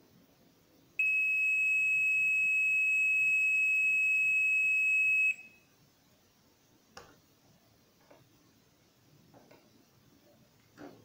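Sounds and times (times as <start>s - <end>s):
multimeter high-pitched beep: 1.0s - 5.6s.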